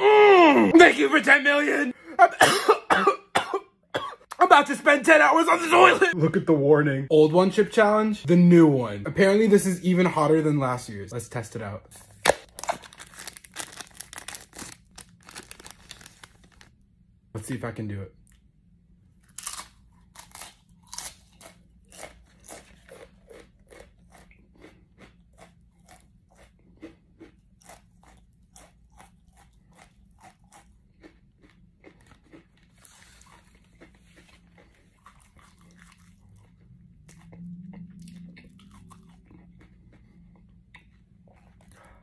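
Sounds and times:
tortilla chip crunching while chewed: 12.4s - 16.7s, 19.2s - 42.0s
low hum: 34.6s - 42.0s.

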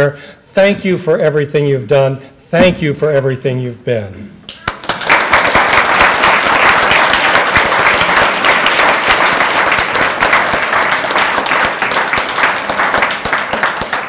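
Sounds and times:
audience applauding: 4.6s - 14.0s.

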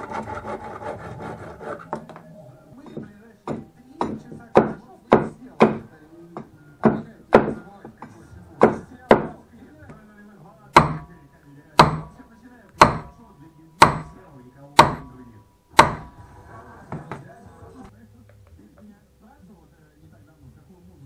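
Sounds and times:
tools striking wood: 2.8s - 9.4s, 10.8s - 11.2s, 11.8s - 12.2s, 12.8s - 13.2s, 13.8s - 14.2s, 14.8s - 16.2s.

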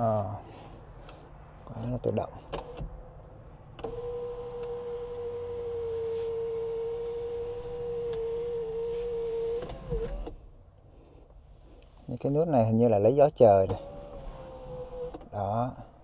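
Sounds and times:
electric motor whining: 3.8s - 10.4s.

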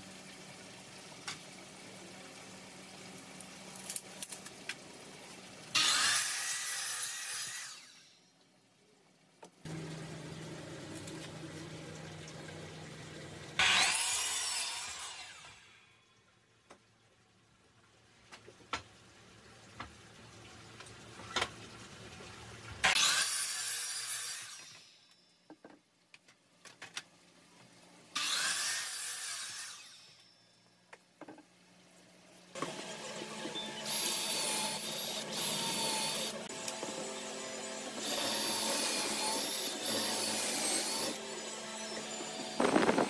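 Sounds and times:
saw blade cutting wood: 5.7s - 8.2s, 13.6s - 15.7s, 22.8s - 25.2s, 28.2s - 30.3s, 32.6s - 43.0s
miter saw motor humming: 32.6s - 43.0s.

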